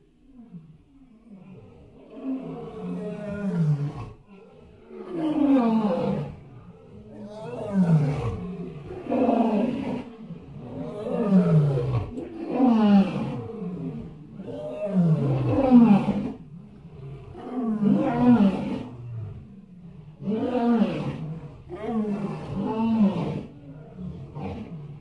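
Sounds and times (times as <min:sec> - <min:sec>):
animal deep roaring calls: 0:00.3 - 0:25.0.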